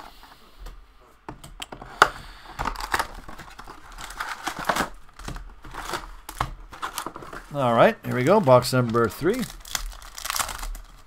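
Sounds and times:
cardboard clicking: 1.3 - 7.5
cellophane wrap crinkling: 2.6 - 11.0.

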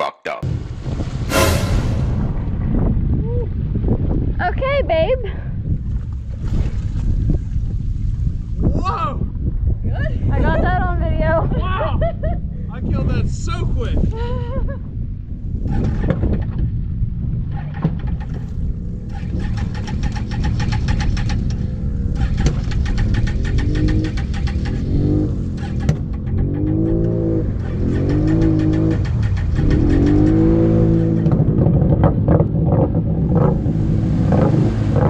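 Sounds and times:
engine running and revving: 15.4 - 35.0.

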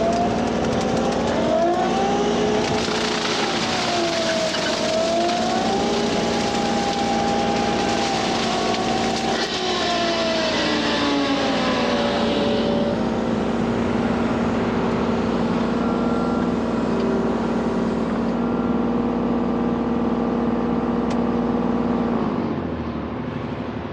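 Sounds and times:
hydraulic brush cutter humming: 0.0 - 15.7
excavator engine rumble: 0.0 - 23.9.

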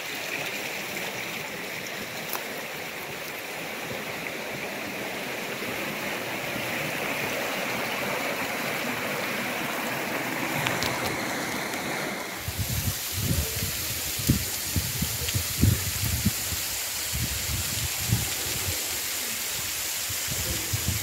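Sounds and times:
stream burbling over stones: 0.0 - 21.0
wind gust on microphone: 10.4 - 21.0.

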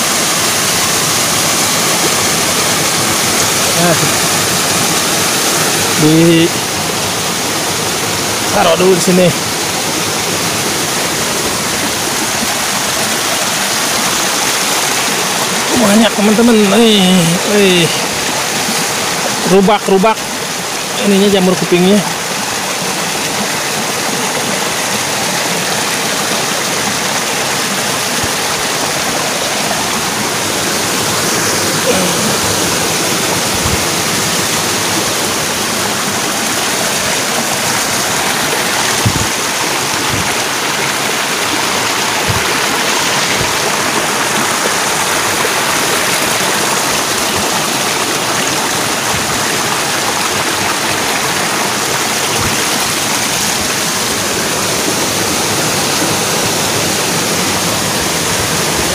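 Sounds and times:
fast-flowing river rushing: 0.0 - 58.9
soft low knocks: 33.4 - 34.3, 38.3 - 40.7, 42.2 - 43.6.

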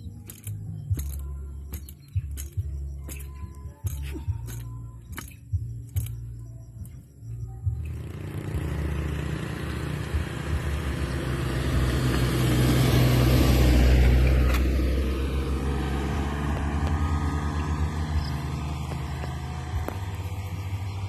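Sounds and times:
van passing by: 7.7 - 21.0.

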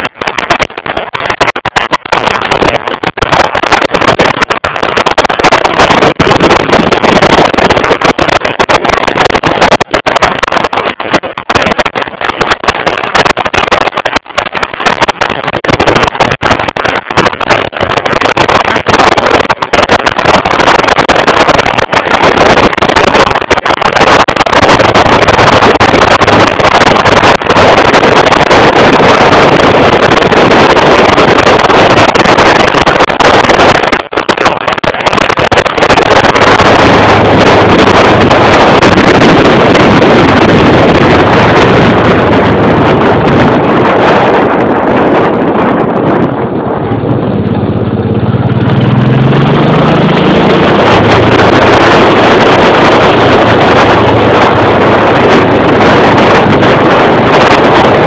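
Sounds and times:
wind noise on microphone: 0.0 - 58.0
motorcycle engine running: 46.6 - 58.0.

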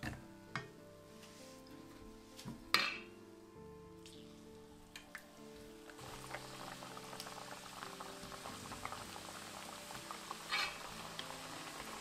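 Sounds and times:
deep-frying in oil bubbling: 5.3 - 12.0.

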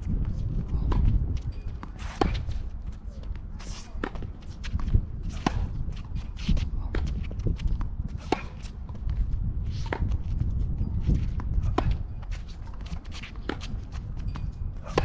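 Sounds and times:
shoes scuffing the court: 0.0 - 15.0
wind on microphone: 0.0 - 15.0
racket striking tennis ball: 1.9 - 2.6, 5.3 - 5.7, 8.1 - 8.7, 11.7 - 12.0.

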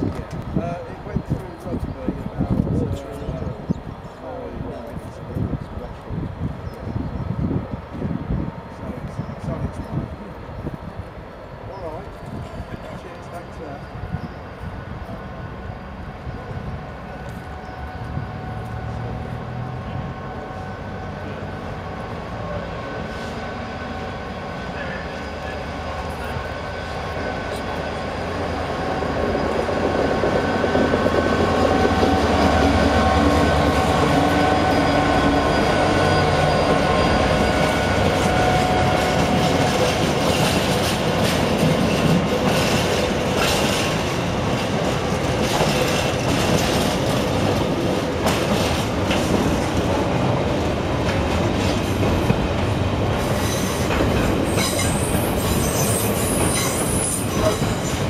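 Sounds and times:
diesel locomotive engine: 0.0 - 58.0
train wheels clattering over rail joints: 37.3 - 58.0
wheel squeal: 54.5 - 58.0.

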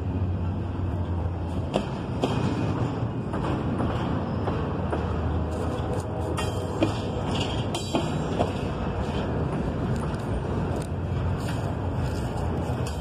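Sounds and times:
freight train wheels rumbling on rail: 0.0 - 13.0
sharp metal clanks: 6.3 - 8.6.

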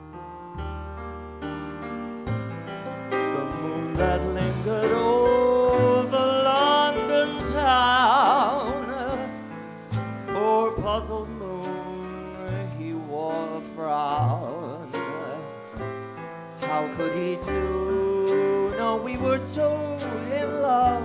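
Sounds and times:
piano: 0.0 - 21.0
plucked double bass: 0.0 - 21.0
man singing jazz ballad: 3.2 - 21.0.

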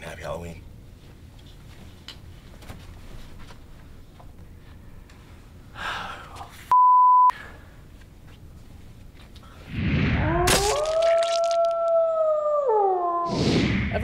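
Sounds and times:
censor bleep: 6.7 - 7.4.

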